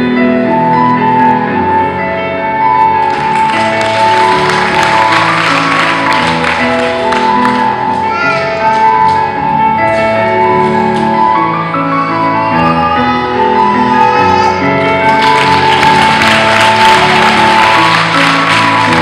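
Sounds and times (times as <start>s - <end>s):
slow melodic music: 0.0s - 19.0s.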